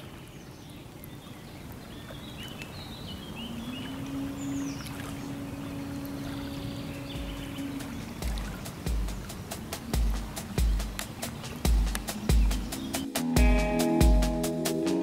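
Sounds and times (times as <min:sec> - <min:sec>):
bird chirps: 0:00.0 - 0:13.9
steady low tone: 0:03.4 - 0:08.5.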